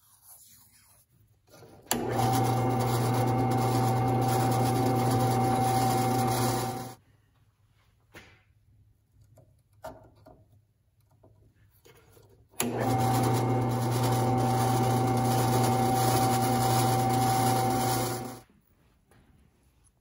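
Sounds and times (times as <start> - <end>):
drill press motor humming: 1.9 - 7.0, 12.6 - 18.4.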